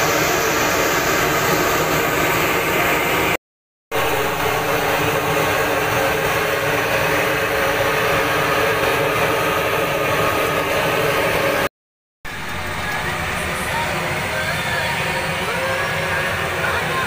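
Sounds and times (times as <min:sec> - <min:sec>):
oil sizzling and bubbling: 0:00.0 - 0:11.7.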